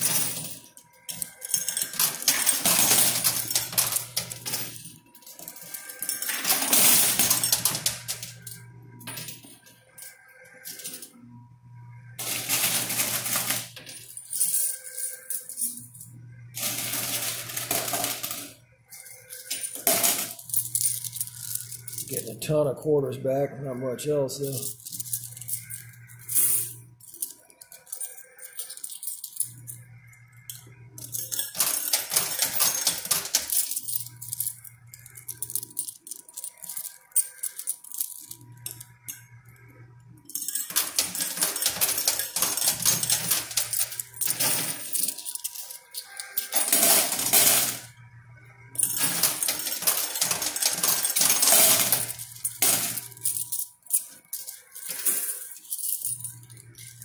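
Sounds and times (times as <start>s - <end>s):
coins clinking and clattering: 0.0s - 11.3s, 12.1s - 22.7s, 24.1s - 39.6s, 40.2s - 47.9s, 48.7s - 57.0s.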